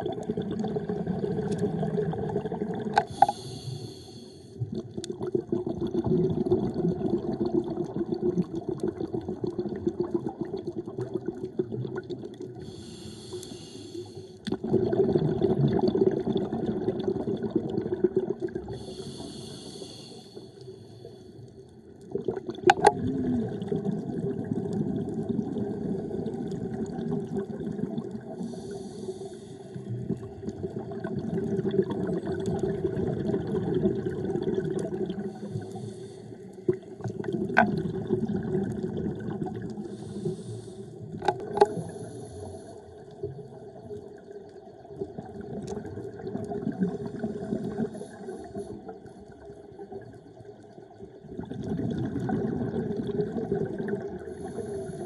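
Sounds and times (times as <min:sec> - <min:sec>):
hissing inhalations: 0:03.1 - 0:04.4, 0:12.7 - 0:14.4, 0:18.8 - 0:21.2, 0:28.4 - 0:29.8, 0:35.3 - 0:36.5, 0:39.9 - 0:41.0
bubbling exhalations: 0:14.4 - 0:19.0, 0:22.1 - 0:28.7, 0:29.8 - 0:40.5.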